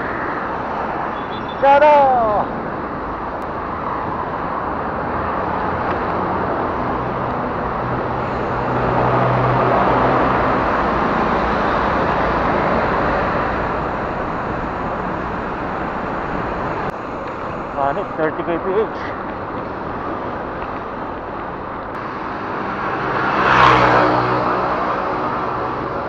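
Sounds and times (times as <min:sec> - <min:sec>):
city motor traffic: 0:00.0 - 0:26.0
passing vehicle hum: 0:00.0 - 0:26.0
air rushing past bicycle: 0:07.5 - 0:24.6.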